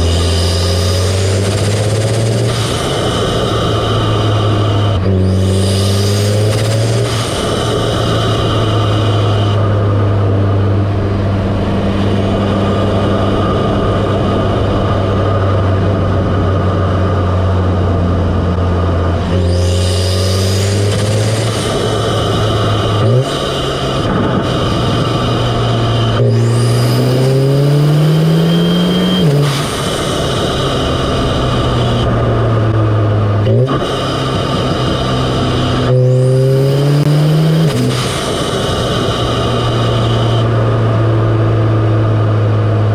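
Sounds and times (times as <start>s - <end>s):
car engine intake drone: 0.0s - 42.9s.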